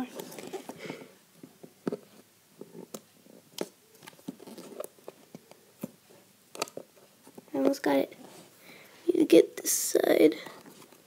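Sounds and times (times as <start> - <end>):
hands handling cardboard box: 0.0 - 8.5.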